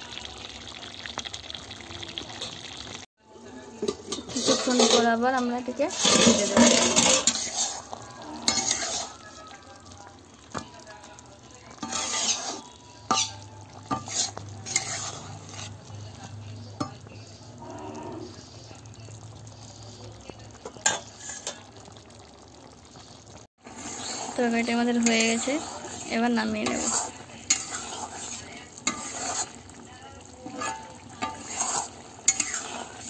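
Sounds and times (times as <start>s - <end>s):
curry simmering and sizzling: 0.0s - 33.0s
spatula scraping a pan: 3.9s - 9.6s, 11.7s - 16.0s, 16.8s - 18.6s, 20.8s - 21.7s, 23.6s - 33.0s.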